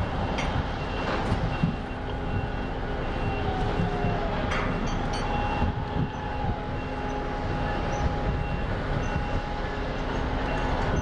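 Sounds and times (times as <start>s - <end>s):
crane winch droning and whining: 0.0s - 11.0s.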